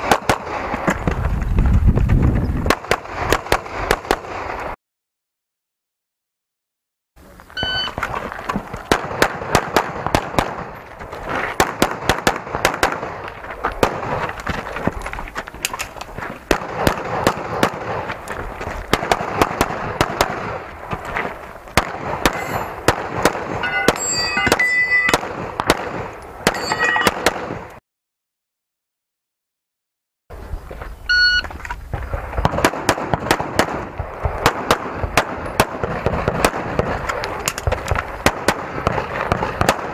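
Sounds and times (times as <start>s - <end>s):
high ringing tones: 7.6s - 8.0s, 22.3s - 22.8s, 23.6s - 25.2s, 26.5s - 27.2s, 31.1s - 31.5s
pistol shots: 8.9s - 10.8s, 11.6s - 14.2s, 16.5s - 18.1s, 18.9s - 20.6s, 21.8s - 27.7s, 32.4s - 39.9s.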